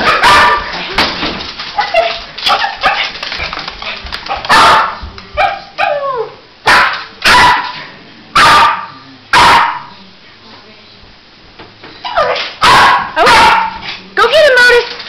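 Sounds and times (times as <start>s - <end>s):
dog barking: 0.0s - 0.7s, 1.8s - 3.1s, 4.3s - 6.0s, 6.6s - 7.8s, 8.4s - 9.9s, 12.1s - 13.9s
dog yipping: 4.5s - 7.7s, 12.0s - 13.8s.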